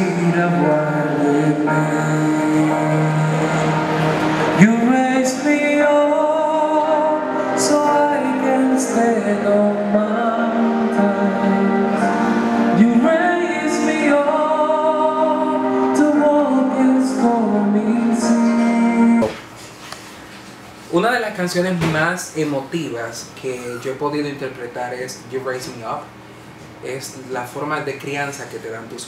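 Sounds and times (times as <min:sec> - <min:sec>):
man singing into microphone: 0:00.0 - 0:19.5
musical accompaniment: 0:00.0 - 0:20.4.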